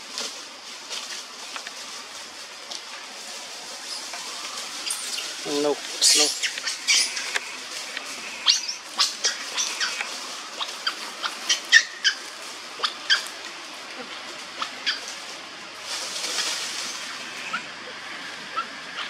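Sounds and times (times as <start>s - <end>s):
macaques squeaking and chirping: 3.8s - 13.4s, 14.5s - 15.1s, 17.0s - 19.0s.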